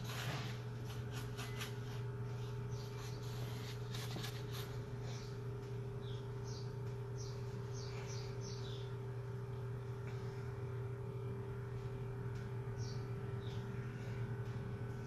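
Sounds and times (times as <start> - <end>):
low hum: 0.0 - 15.0
faint bird chirps: 6.0 - 9.0.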